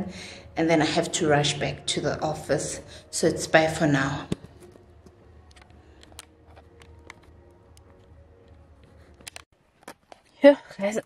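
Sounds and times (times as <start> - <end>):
hand handling camera: 4.5 - 8.1, 8.8 - 10.3.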